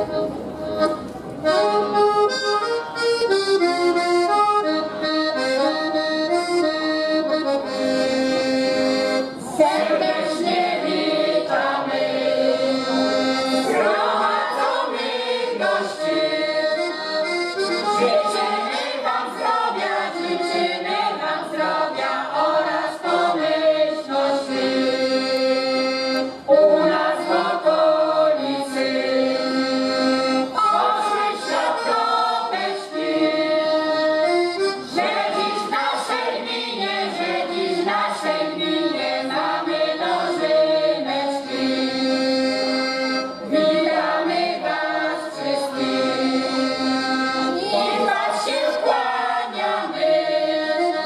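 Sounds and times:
piano accordion folk tune: 0.0s - 51.0s
women singing in unison: 9.5s - 12.8s, 13.6s - 16.8s, 18.0s - 24.9s, 30.6s - 33.8s, 34.9s - 42.0s, 43.5s - 46.6s, 47.5s - 51.0s.

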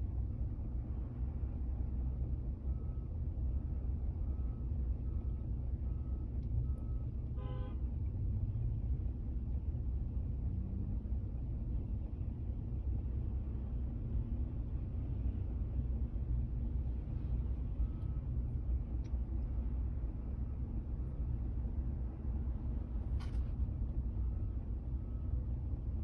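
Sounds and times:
road traffic rumble: 0.0s - 26.0s
car horn toot: 7.4s - 7.8s
vehicle idling: 11.1s - 26.0s.

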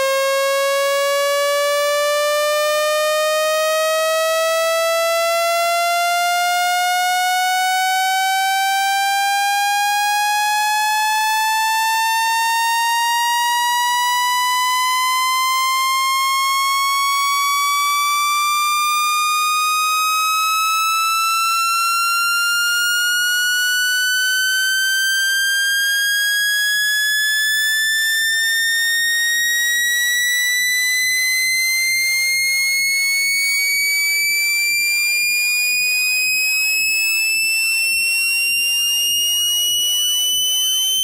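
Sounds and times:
electronic tone rising in pitch: 29.5s - 41.0s.

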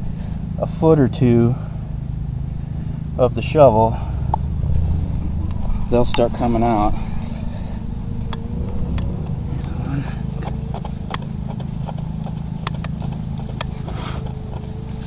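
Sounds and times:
sharp clicks: 12.6s - 14.4s.

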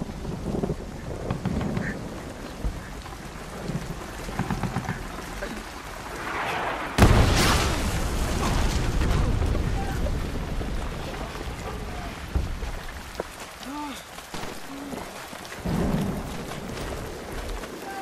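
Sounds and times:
distant explosions rumbling: 0.0s - 13.4s, 14.3s - 17.8s
rising rush: 6.0s - 8.0s
loud blast: 6.4s - 10.0s.

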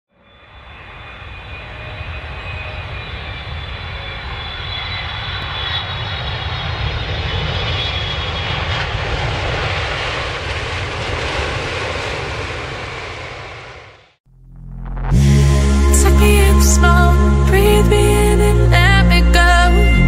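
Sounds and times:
faint high whine: 0.1s - 5.9s
aircraft engine noise: 0.1s - 20.0s.

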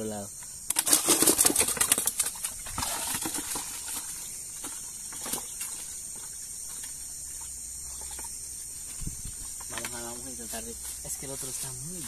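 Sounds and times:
night insects chorus: 0.0s - 12.0s
plastic bucket knocks and rustles: 0.7s - 6.9s.

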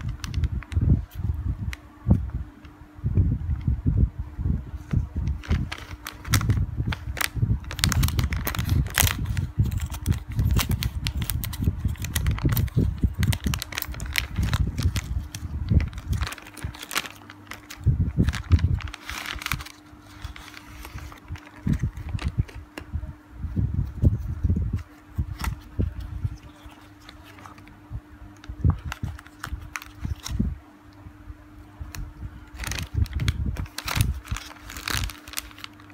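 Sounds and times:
plastic wrapper crinkling: 0.0s - 1.8s, 5.2s - 22.9s, 23.8s - 27.8s, 28.4s - 30.5s, 32.5s - 35.9s
scissors cutting plastic: 5.4s - 22.8s, 32.5s - 35.9s.

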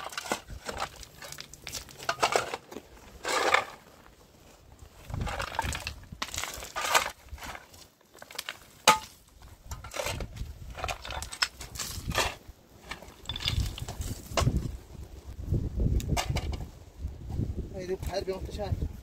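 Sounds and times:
shovel scraping through gravel: 0.0s - 4.1s, 5.0s - 14.6s.

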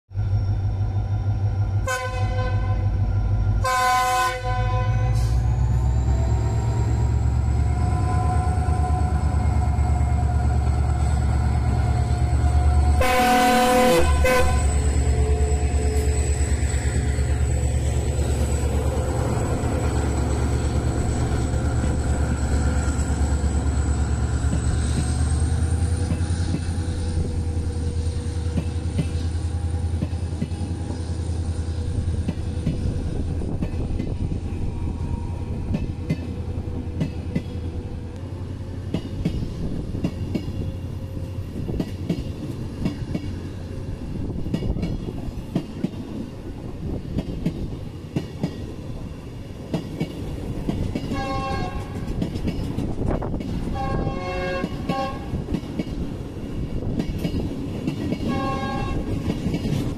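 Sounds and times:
diesel locomotive rumbling: 0.1s - 59.9s
train coaches rolling past: 0.1s - 59.9s
locomotive horn blasts: 1.8s - 3.0s, 3.6s - 5.4s, 12.9s - 14.8s, 51.1s - 52.1s, 53.7s - 55.4s, 58.3s - 59.2s.

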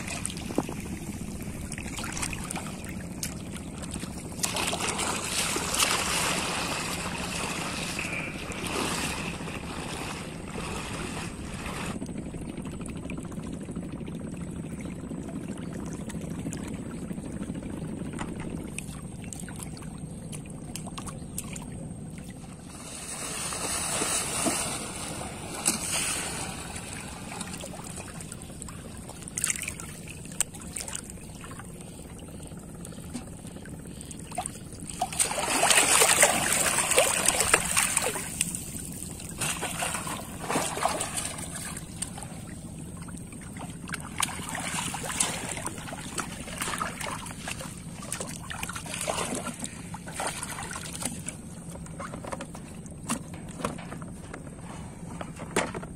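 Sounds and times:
water sloshing and splashing: 0.0s - 55.9s.

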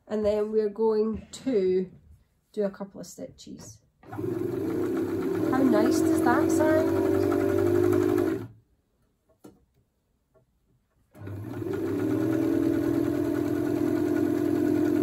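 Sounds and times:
sewing machine humming: 4.0s - 8.6s, 11.2s - 15.0s.

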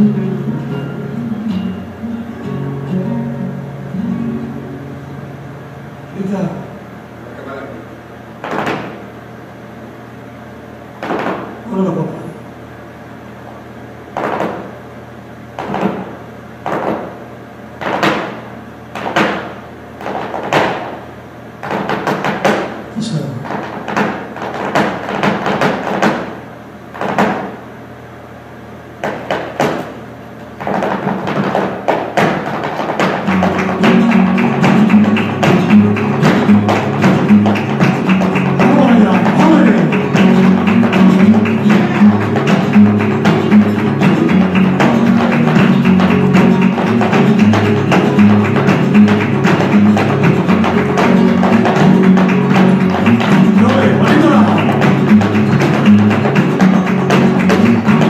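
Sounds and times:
sharp percussive strikes: 30.6s - 58.0s.

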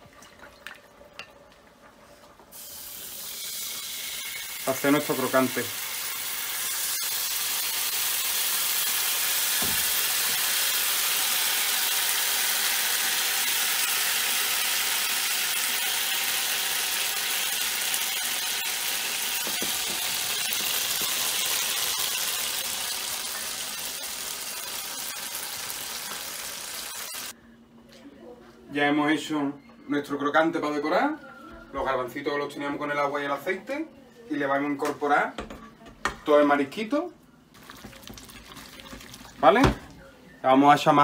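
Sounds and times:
batter sizzling in frying pan: 2.4s - 27.4s, 37.6s - 39.8s.

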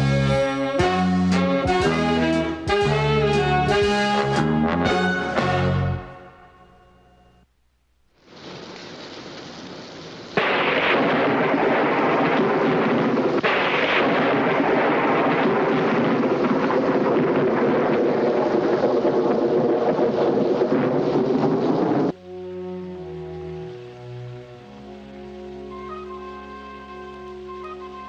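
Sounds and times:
stormy hiss: 8.1s - 27.9s
rolling thunder: 10.4s - 22.2s
sharp thunderclaps: 10.4s - 22.2s.

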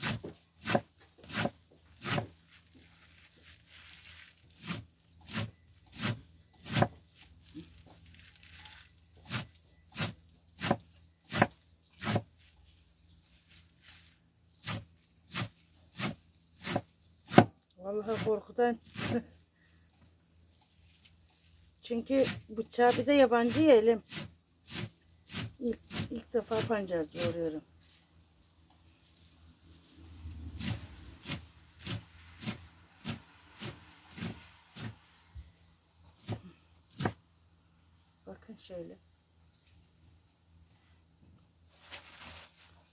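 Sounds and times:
knife chopping vegetables: 0.0s - 2.4s, 4.6s - 7.0s, 9.2s - 12.3s, 14.6s - 17.5s, 18.1s - 19.2s, 22.2s - 27.4s, 30.6s - 35.0s, 36.2s - 37.2s.

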